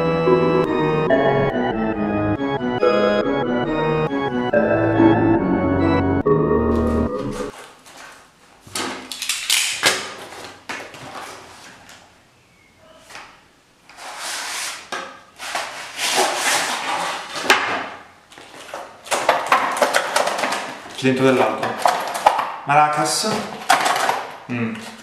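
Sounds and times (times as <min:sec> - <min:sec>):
cardboard scraping and tearing: 0:07.5 - 0:09.1, 0:10.1 - 0:11.9, 0:13.9 - 0:17.7.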